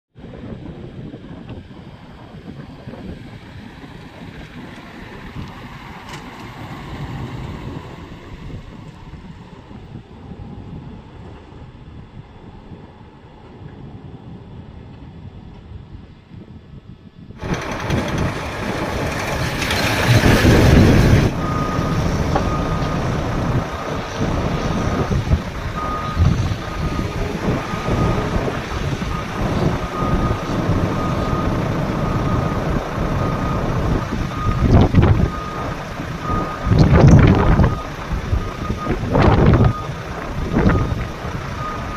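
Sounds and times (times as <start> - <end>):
diesel engines of heavy machinery: 0.2 - 41.9
truck reversing alarm beeping: 17.4 - 41.9.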